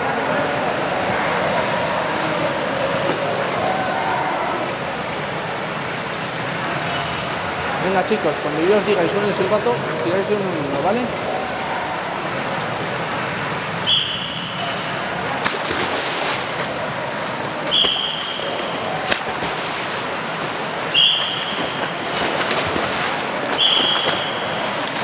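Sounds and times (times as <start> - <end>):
indoor pool hall ambience: 0.0 - 25.0
whistle blasts: 13.8 - 14.7, 17.7 - 18.8, 20.9 - 21.8, 23.6 - 24.7
children splashing into water: 15.3 - 25.0.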